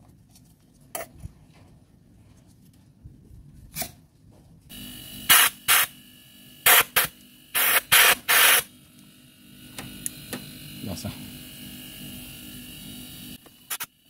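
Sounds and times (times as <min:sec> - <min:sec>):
air blow gun hissing bursts: 0:05.3 - 0:06.0, 0:06.6 - 0:08.7.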